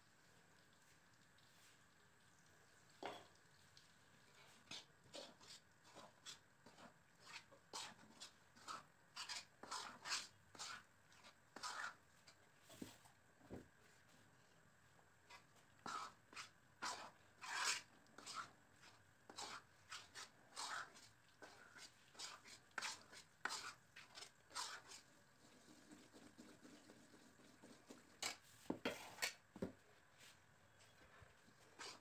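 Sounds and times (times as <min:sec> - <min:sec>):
steel spatula scraping a pan: 0:04.3 - 0:12.0, 0:15.3 - 0:25.1, 0:28.2 - 0:29.4, 0:31.6 - 0:32.0.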